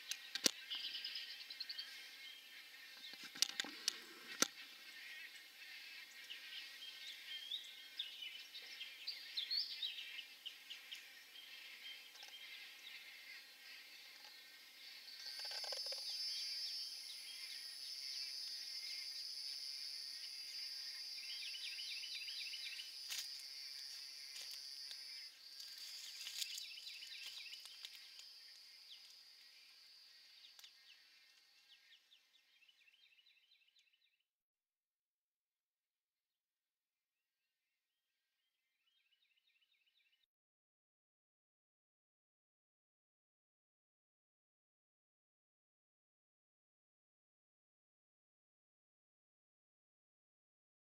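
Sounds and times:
birds chirping: 0.0s - 34.2s.

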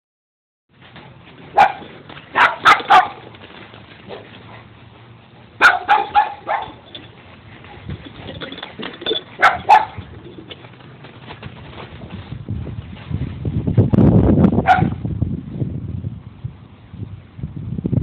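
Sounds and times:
dog barking: 1.5s - 3.2s, 5.6s - 6.8s, 9.4s - 10.0s, 14.6s - 15.0s.

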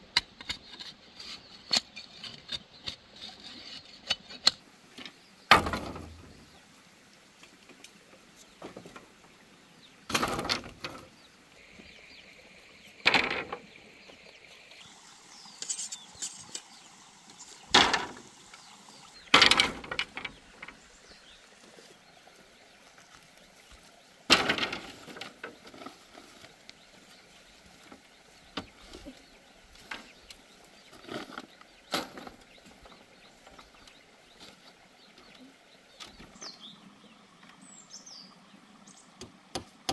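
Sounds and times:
bamboo poles knocking: 5.5s - 6.3s, 10.1s - 11.1s, 13.0s - 13.7s, 17.7s - 18.3s, 19.3s - 20.8s, 24.3s - 26.3s.

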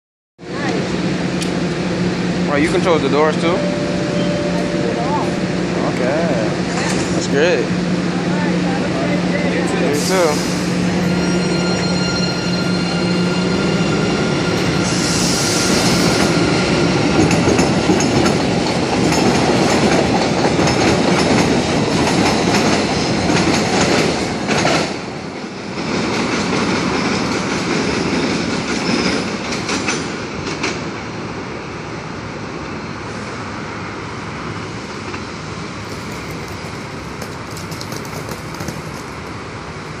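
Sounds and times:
train rumble: 0.4s - 40.0s
train wheel squeal: 9.9s - 16.8s
wheels clacking over rail joints: 16.2s - 25.0s, 35.8s - 39.5s.

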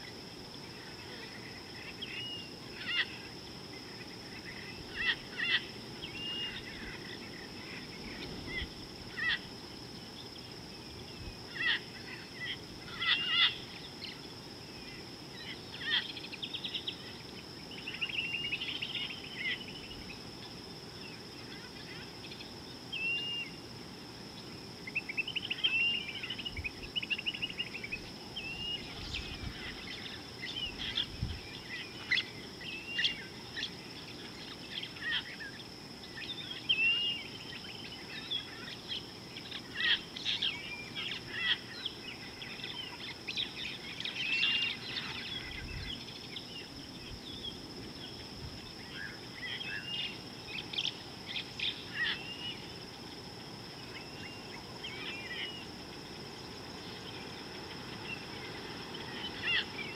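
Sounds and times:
steady high-pitched hum: 0.0s - 59.9s
birds chirping and whistling: 25.2s - 33.7s.

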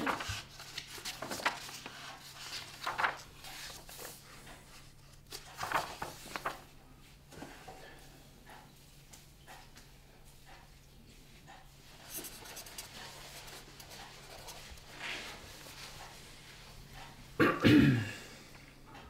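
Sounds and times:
paper rustling: 0.0s - 6.7s, 12.0s - 17.1s.

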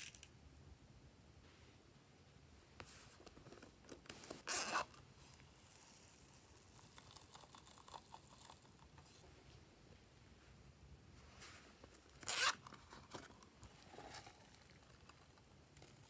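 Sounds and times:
zipper rasp: 4.4s - 5.0s, 12.2s - 12.7s.

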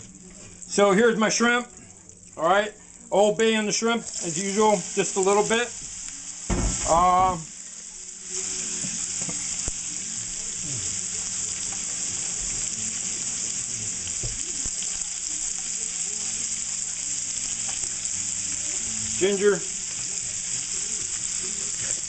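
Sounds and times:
shrimp sizzling in a pan: 0.0s - 22.0s.

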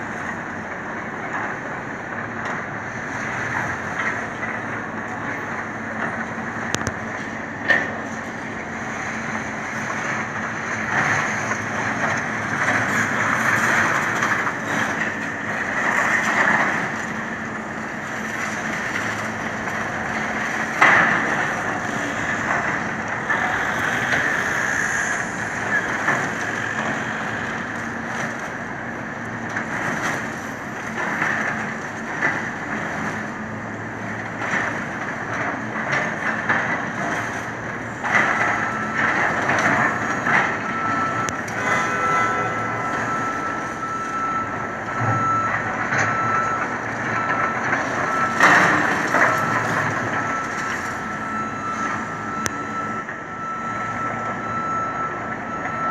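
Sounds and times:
diesel engines running: 0.0s - 55.9s
reversing alarm beeping: 35.9s - 55.9s.

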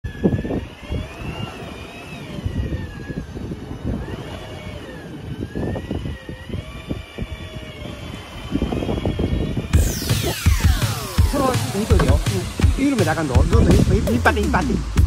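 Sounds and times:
engine whining: 0.0s - 15.0s
wind buffeting microphone: 0.0s - 15.0s.

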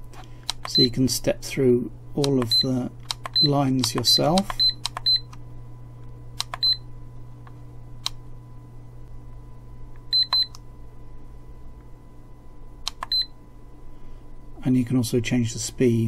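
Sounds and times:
steady low hum: 0.0s - 16.0s
short high-pitched beeps: 10.2s - 10.6s.

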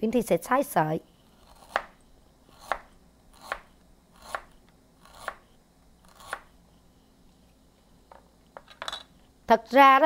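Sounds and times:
cleaver chopping on cutting board: 1.6s - 1.9s, 6.2s - 6.5s.

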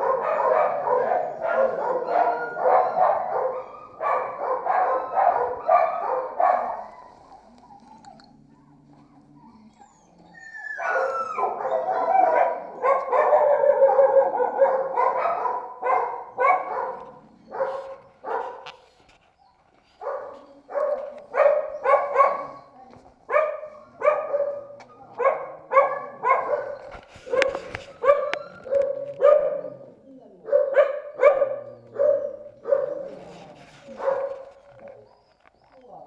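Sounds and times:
dogs barking: 0.0s - 7.1s, 10.8s - 18.8s, 20.0s - 35.1s.

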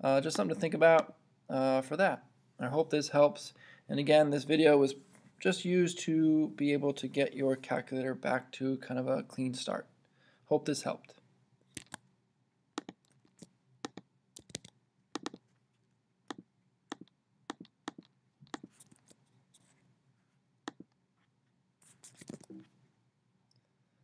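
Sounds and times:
computer mouse clicks: 11.7s - 12.0s, 12.8s - 15.4s, 16.3s - 19.1s.

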